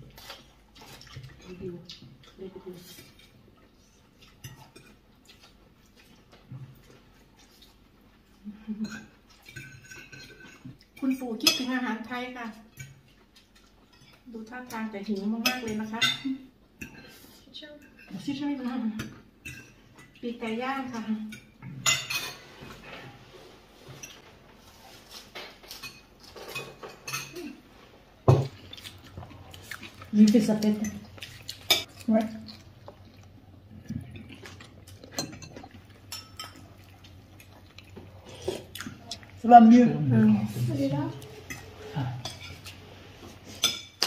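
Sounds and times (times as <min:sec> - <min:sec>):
cutlery clinking on ceramic plates: 0:08.8 - 0:10.8, 0:21.3 - 0:22.6, 0:25.4 - 0:27.4, 0:35.1 - 0:36.6, 0:41.5 - 0:42.8, 0:43.5 - 0:44.0
cutlery clinking on plates: 0:43.5 - 0:44.0.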